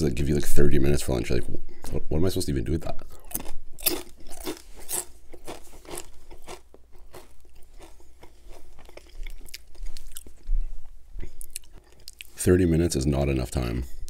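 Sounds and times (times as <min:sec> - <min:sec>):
crunching potato chips: 0:03.2 - 0:10.4.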